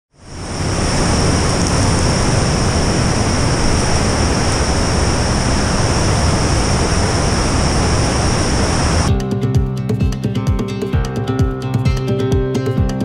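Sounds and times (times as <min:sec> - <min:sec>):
roar of rushing water: 0:00.1 - 0:09.1
high-pitched whines: 0:00.2 - 0:09.1.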